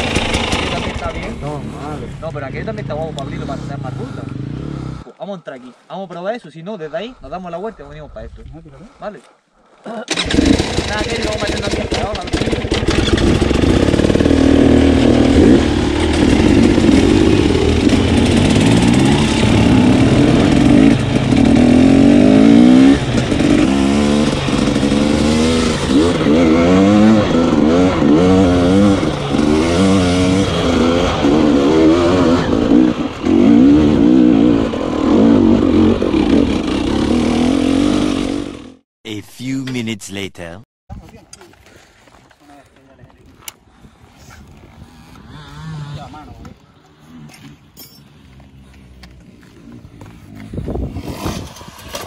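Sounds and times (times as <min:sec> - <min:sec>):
dirt bike engine revving: 0:00.0 - 0:05.0, 0:10.1 - 0:38.8, 0:44.6 - 0:46.3.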